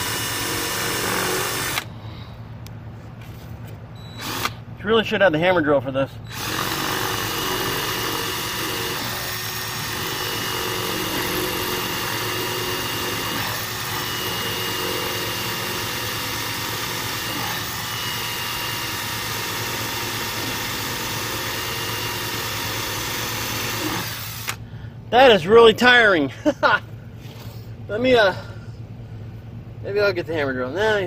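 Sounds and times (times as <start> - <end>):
drill grinding into brick: 0.0 - 1.9, 4.2 - 4.6, 6.3 - 24.6.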